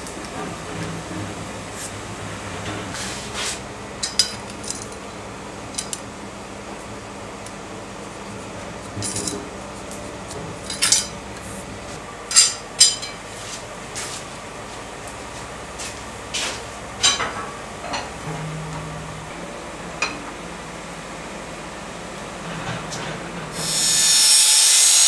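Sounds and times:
steady low hum: 0:00.0 - 0:23.6
metal tools clinking: 0:09.0 - 0:09.4, 0:10.7 - 0:11.1.

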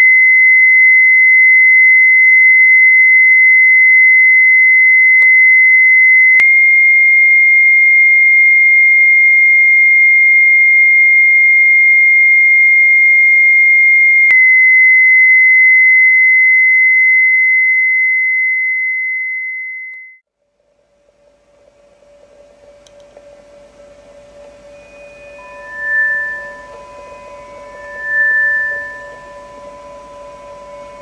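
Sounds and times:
click: 0:22.8 - 0:23.3
high-pitched tone: 0:23.8 - 0:31.0.

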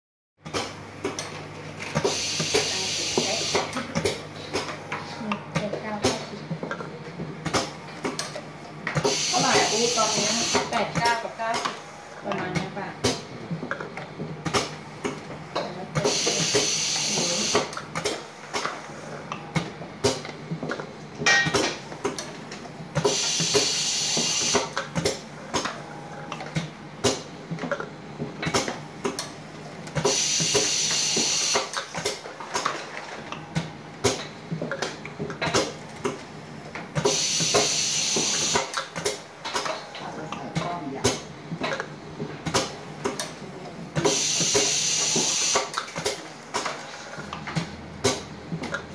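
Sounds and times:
air hiss of filling machine: 0:02.0 - 0:03.7, 0:09.0 - 0:10.7, 0:16.0 - 0:17.7, 0:23.0 - 0:24.7, 0:30.0 - 0:31.7, 0:37.0 - 0:38.7, 0:44.0 - 0:45.8.

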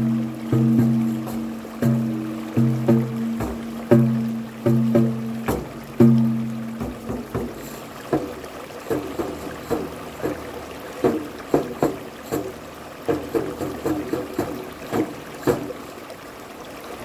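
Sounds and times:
frame drum strokes: 0:00.0 - 0:15.9
rocky stream rushing: 0:00.0 - 0:17.0.

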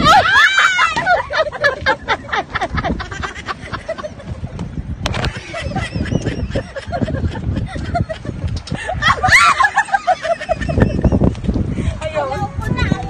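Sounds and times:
person laughing and giggling: 0:05.3 - 0:11.3.

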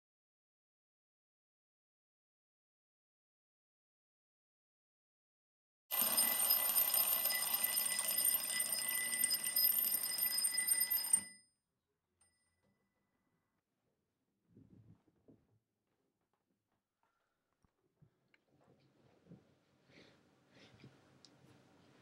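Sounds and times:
alarm clock ringing: 0:05.9 - 0:11.4.

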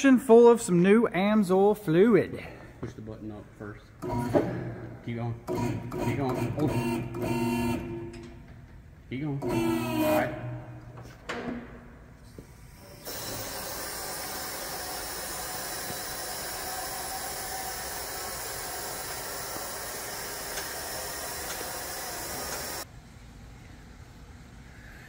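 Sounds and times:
vehicle lift valve hissing: 0:12.5 - 0:22.9.

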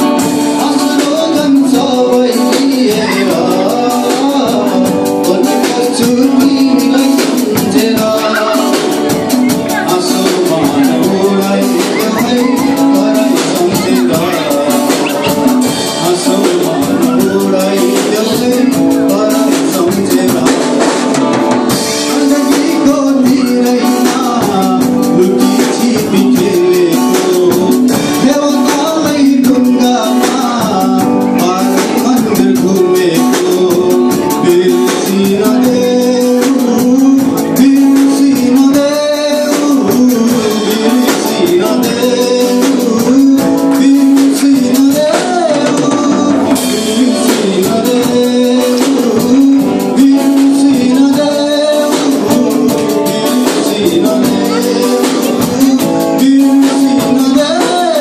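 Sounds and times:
bass guitar: 0:00.0 - 0:58.0
drum kit: 0:00.0 - 0:58.0
electric guitars: 0:00.0 - 0:58.0
hand drum: 0:00.0 - 0:58.0
man singing into a microphone: 0:00.0 - 0:58.0.

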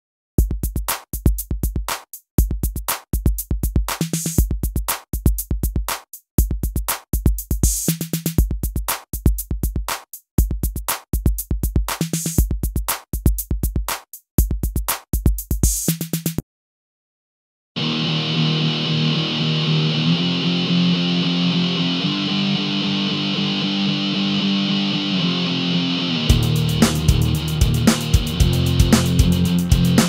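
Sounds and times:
electronic music with drum machine: 0:00.4 - 0:16.4, 0:26.3 - 0:30.0.

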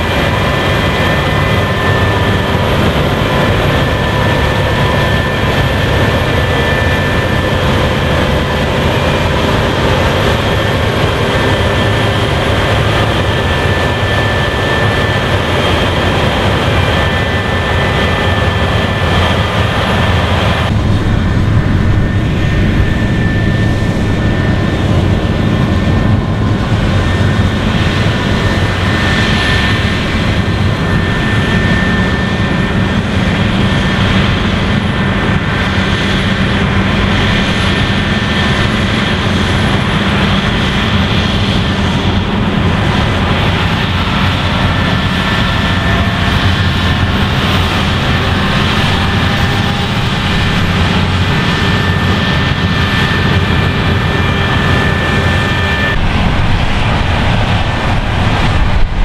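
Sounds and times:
combine harvester drone: 0:00.0 - 0:59.0.

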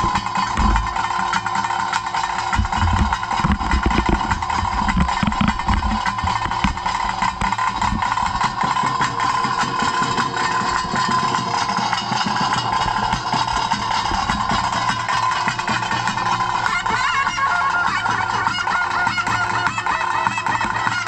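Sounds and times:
drums and cymbals beating rapidly: 0:00.0 - 0:21.0
heavy low drumbeats: 0:00.0 - 0:21.0
high piping tone: 0:02.2 - 0:20.6.

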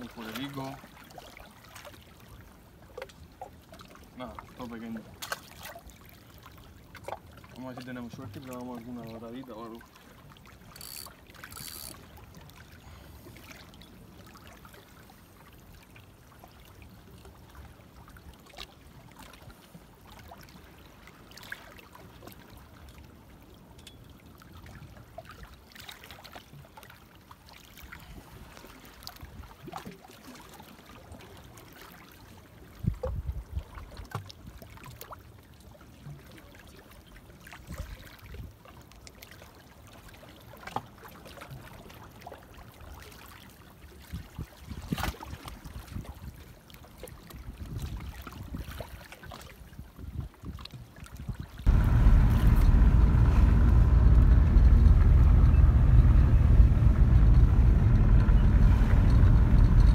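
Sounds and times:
waves lapping against rocks: 0:00.0 - 0:52.6
low rumbling: 0:51.7 - 0:59.9.

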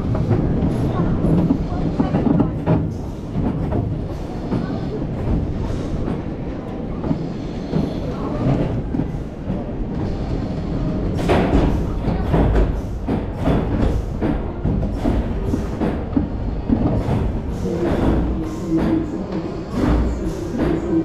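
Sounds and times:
roller coaster wheels rumbling: 0:00.0 - 0:21.0
roller coaster knocks: 0:11.1 - 0:19.1.

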